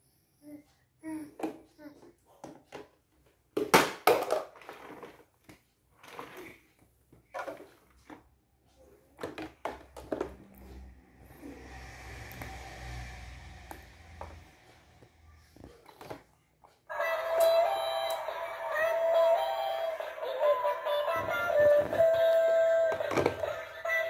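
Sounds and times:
low steady rumble: 10.2 - 15.8.

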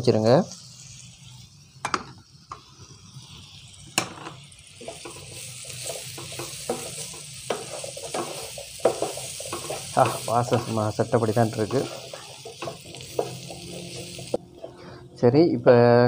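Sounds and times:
food sizzling in oil: 0.0 - 15.0
wooden spatula scraping pan: 5.8 - 14.8.

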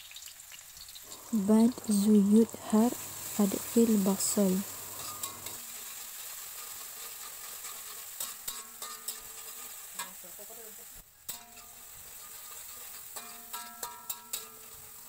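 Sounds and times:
onion sizzling in hot oil: 0.0 - 15.0
metal spatula scraping pan: 4.7 - 10.2, 11.3 - 15.0.

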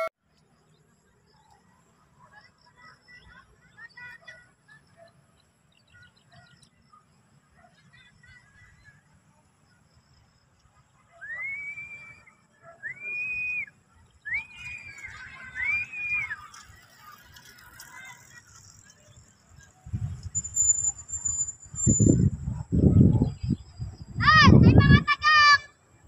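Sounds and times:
faint small-bird chirps: 0.4 - 11.3
long whistled calls: 11.2 - 16.7.

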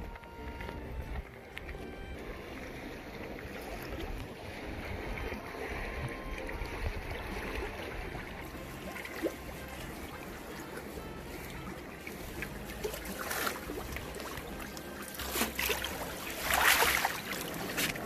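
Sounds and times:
wind rumbling on microphone: 0.0 - 8.9
seawater washing among rocks: 0.0 - 18.0.

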